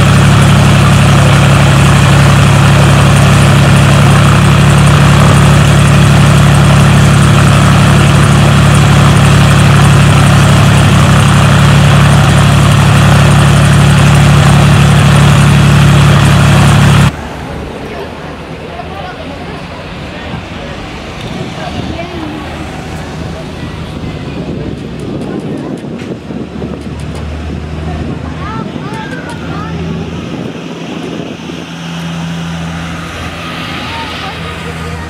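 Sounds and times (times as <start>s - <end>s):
propeller plane engine idling: 0.0s - 35.0s.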